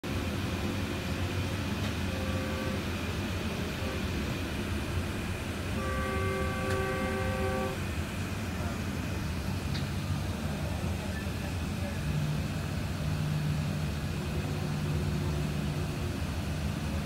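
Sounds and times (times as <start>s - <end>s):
train rumbling: 0.0s - 17.0s
locomotive horn blasts: 2.0s - 4.3s, 5.7s - 8.0s.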